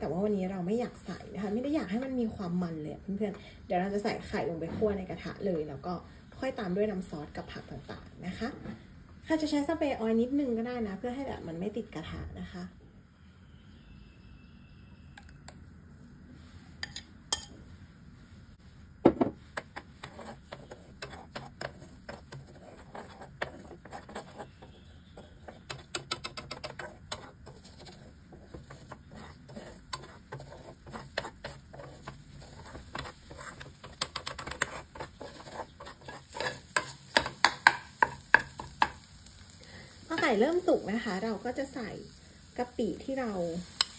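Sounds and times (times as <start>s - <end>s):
metal spatula scraping a pot: 19.6s - 38.9s.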